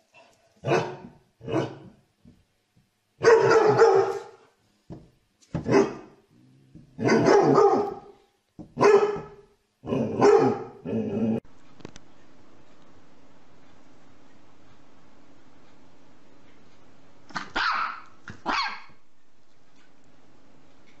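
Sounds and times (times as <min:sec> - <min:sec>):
dog barking: 0:00.6 - 0:01.9, 0:03.2 - 0:04.5, 0:05.6 - 0:06.2, 0:07.0 - 0:08.2, 0:08.8 - 0:10.9, 0:17.3 - 0:19.0.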